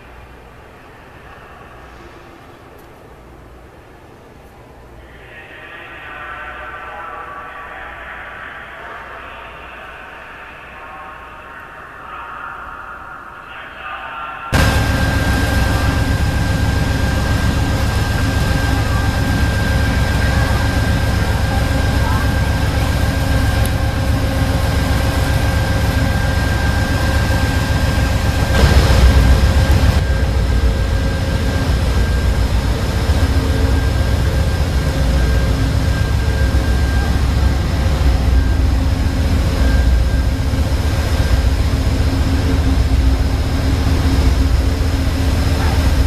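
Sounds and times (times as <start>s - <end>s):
loud rush of noise: 4.8s - 46.0s
diesel locomotive rumbling: 14.5s - 46.0s
constant whining tones: 14.6s - 46.0s.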